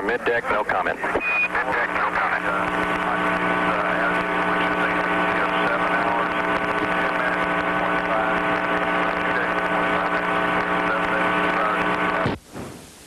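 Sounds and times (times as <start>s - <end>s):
steady hum of fixed tones: 0.0s - 13.0s
hiss: 12.4s - 13.0s.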